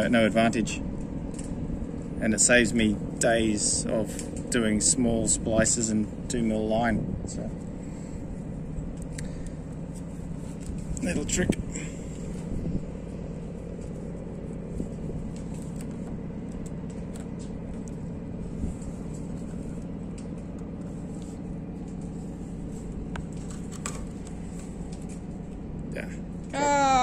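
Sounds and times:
low rumble with faint hum: 0:00.0 - 0:27.0
rope clicks and rustles: 0:13.6 - 0:25.7.

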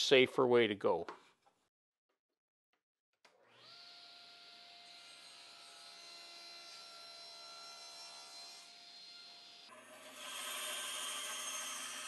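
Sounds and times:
table saw motor whining: 0:03.3 - 0:12.0.

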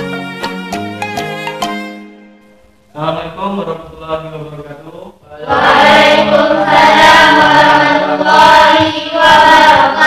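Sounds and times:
choir singing: 0:05.3 - 0:10.0.

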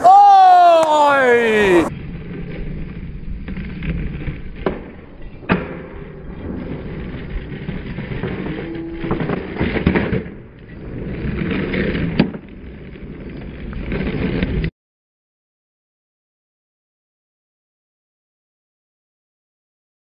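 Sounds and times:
skateboard wheels rolling on concrete: 0:00.0 - 0:14.7.

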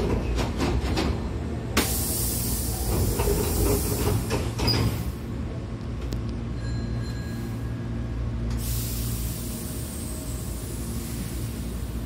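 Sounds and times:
low hum of stationary train: 0:00.0 - 0:12.0
train sliding doors closing: 0:00.0 - 0:12.0
air hiss: 0:01.8 - 0:05.2, 0:08.5 - 0:12.0.

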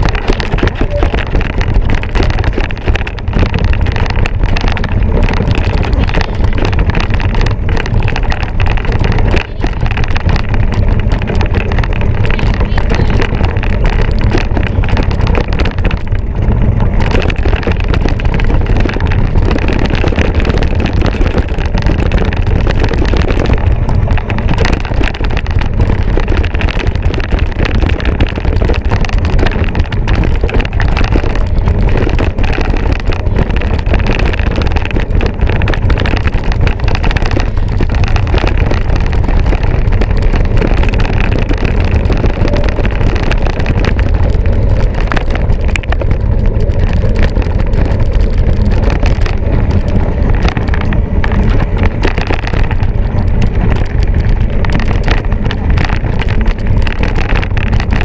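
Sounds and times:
bike clattering on rough trail: 0:00.0 - 0:58.0
wind buffeting microphone: 0:00.0 - 0:58.0.

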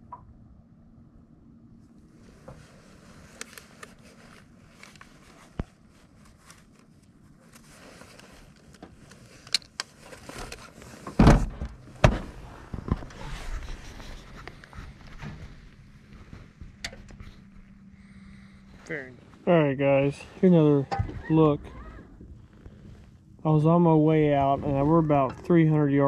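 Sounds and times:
heavy knocks and rubbing on camera: 0:10.1 - 0:17.5.

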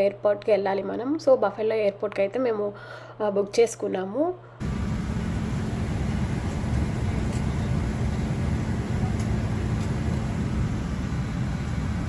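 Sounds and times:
airliner cabin drone: 0:04.6 - 0:12.0.

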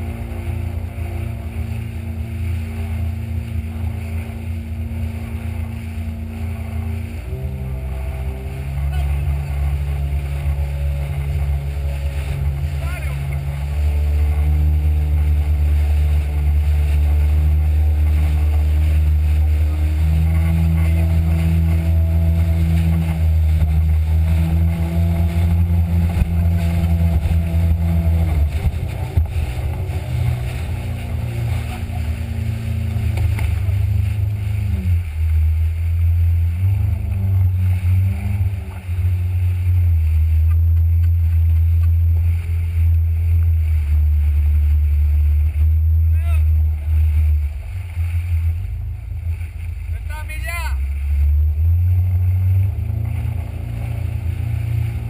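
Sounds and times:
jet ski engine running: 0:00.0 - 0:55.0.

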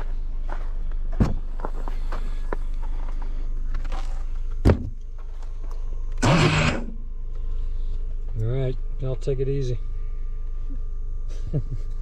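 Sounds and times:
car hatch motor humming: 0:06.1 - 0:07.0.

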